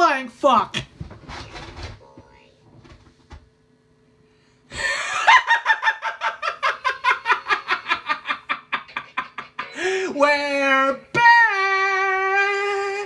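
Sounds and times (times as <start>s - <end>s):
person laughing: 4.7s - 10.1s.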